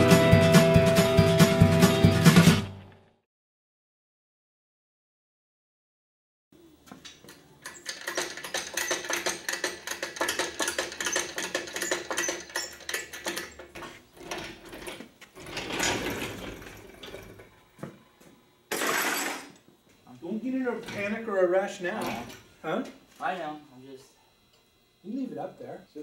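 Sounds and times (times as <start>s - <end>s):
engine hoist clicking and rattling: 7.6s - 17.6s.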